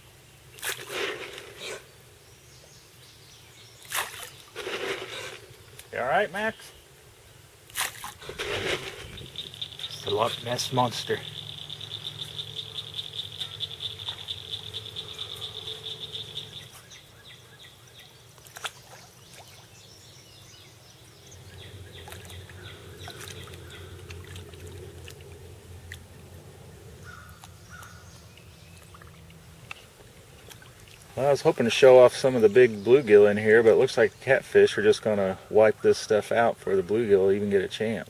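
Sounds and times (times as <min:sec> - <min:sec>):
low steady hum: 0:00.0 - 0:38.0
animal high-pitched pulsing trill: 0:09.1 - 0:16.8.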